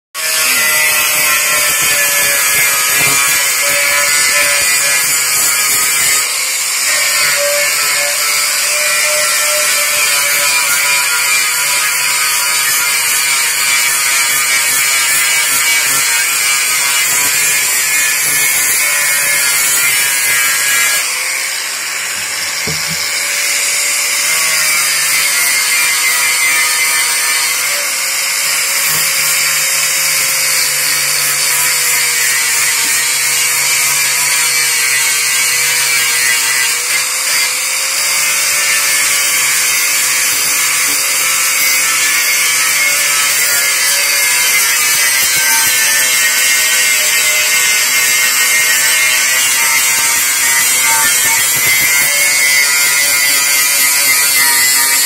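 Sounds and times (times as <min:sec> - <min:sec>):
angle grinder grinding metal: 0:00.2 - 0:55.0.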